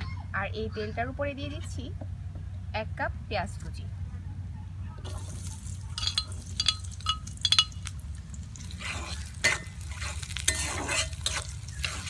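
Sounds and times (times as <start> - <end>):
onion sizzling in oil: 5.0 - 12.0
metal spatula clinking on plate: 6.0 - 7.9
spatula scraping and stirring: 8.5 - 12.0.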